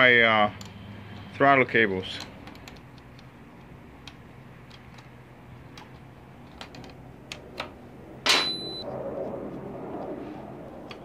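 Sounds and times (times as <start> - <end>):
sharp metal clack with ringing: 8.2 - 8.8.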